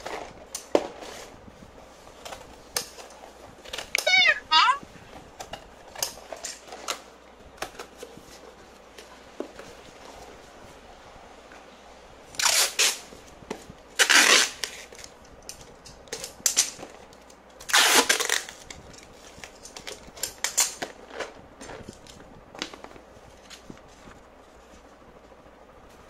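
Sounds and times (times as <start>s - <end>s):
packing tape ripping off roll: 12.4s - 13.1s, 14.0s - 22.8s.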